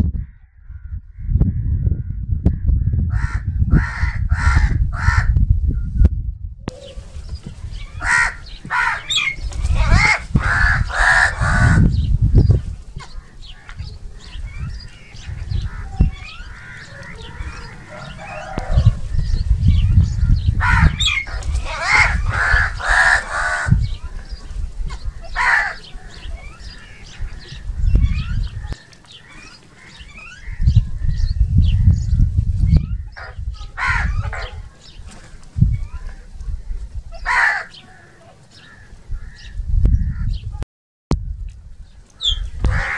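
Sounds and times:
crows cawing: 3.2 - 5.3, 7.9 - 11.9, 15.1 - 19.3, 20.6 - 27.7, 28.8 - 30.6, 33.2 - 34.5, 37.2 - 40.3, 42.2 - 42.9
soft bird chatter: 6.7 - 40.6, 41.8 - 42.9
low rumble: 14.4 - 22.9.

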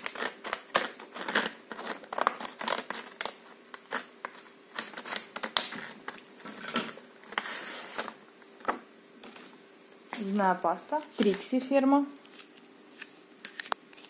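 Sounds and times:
scissors snipping plastic: 0.0 - 6.2
plastic and cardboard rustling: 0.0 - 11.6.

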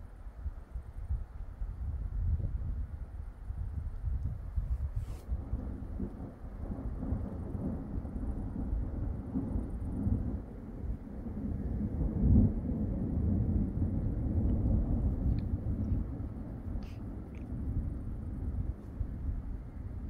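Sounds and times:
rolling thunder: 5.3 - 20.0.

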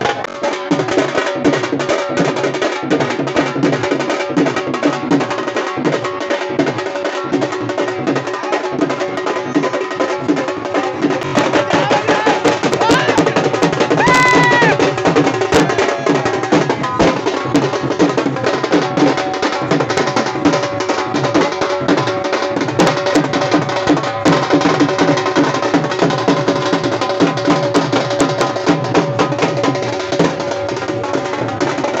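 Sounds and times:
drums beaten with sticks: 0.0 - 32.0.

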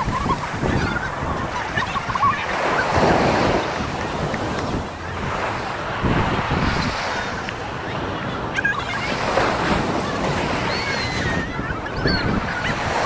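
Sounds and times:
ocean surf on a beach: 0.0 - 13.0
wind buffeting microphone: 0.0 - 13.0
thin high wavering cries: 10.6 - 12.8.

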